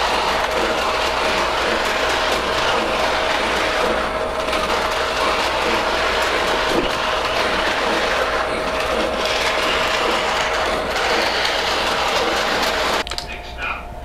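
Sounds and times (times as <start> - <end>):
toy train motor whirring and rattling: 0.0 - 13.0.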